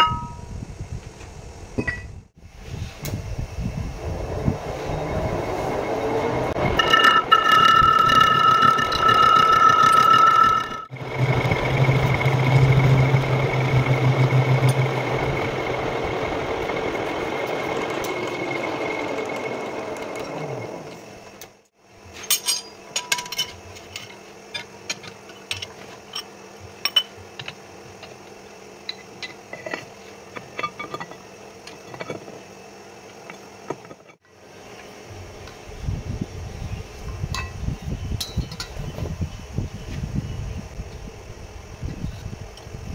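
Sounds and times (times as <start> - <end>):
metal plate clinking: 0.0 - 0.4, 6.6 - 10.9
lathe chuck coasting down: 5.0 - 21.6
metal lathe humming and cutting: 5.5 - 21.2.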